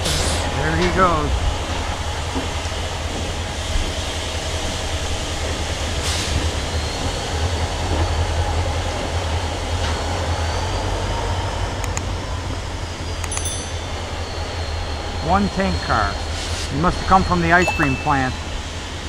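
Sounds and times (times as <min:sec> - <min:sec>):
freight train cars rumbling: 0:00.0 - 0:19.0.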